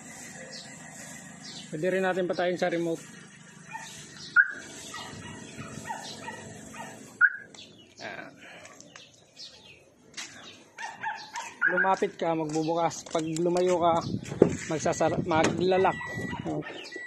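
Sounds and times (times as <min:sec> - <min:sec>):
car engine idling: 0:00.0 - 0:17.0
car alarm chirp: 0:04.2 - 0:06.4, 0:07.2 - 0:07.5, 0:11.1 - 0:12.0, 0:14.9 - 0:17.0
faint chirps and clicks: 0:08.6 - 0:09.3.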